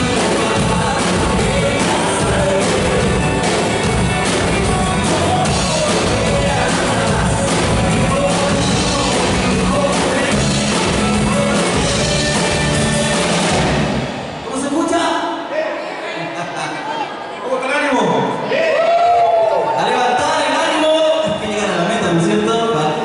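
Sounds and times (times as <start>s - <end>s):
man singing: 0.0s - 13.8s
drum kit: 0.0s - 14.5s
electric guitar: 0.0s - 14.5s.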